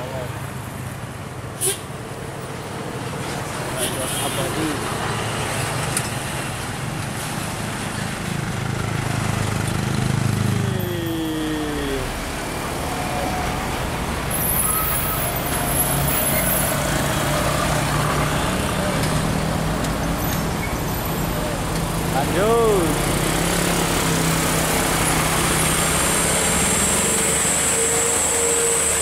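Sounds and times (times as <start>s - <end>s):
motorcycles and cars passing: 0.0s - 14.4s, 15.1s - 29.0s
bus engine passing: 0.0s - 29.0s
truck engine passing: 7.2s - 29.0s.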